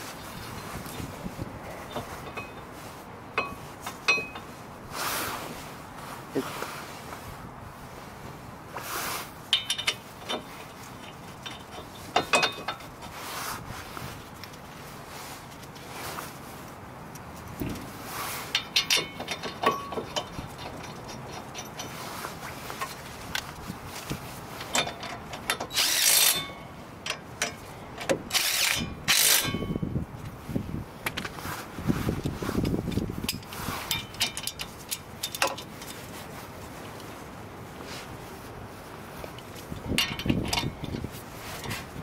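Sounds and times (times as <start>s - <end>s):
metal clinks: 9.5s - 12.9s, 18.5s - 22.0s, 39.9s - 41.1s
ratchet clicking: 24.7s - 26.5s, 28.3s - 29.6s.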